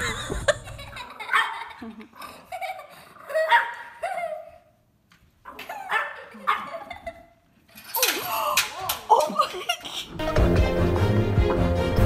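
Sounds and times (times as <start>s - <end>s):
dog barking and yelping: 1.2s - 1.8s, 3.2s - 4.6s, 5.5s - 7.1s.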